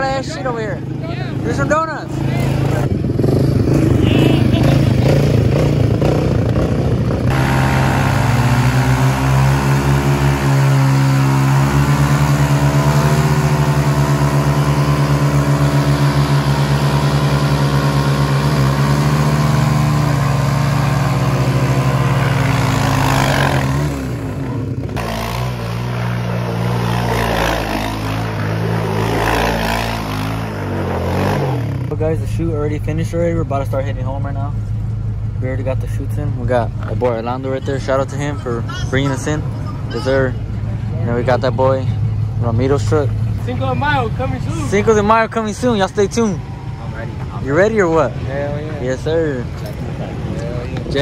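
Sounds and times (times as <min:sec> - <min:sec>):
atv engine at high revs: 0:00.0 - 0:34.2.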